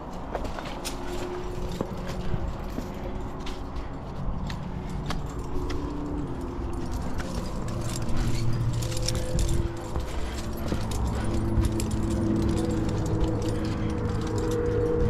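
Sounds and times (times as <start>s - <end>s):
climbing gear jingling and clinking: 0.0s - 15.0s.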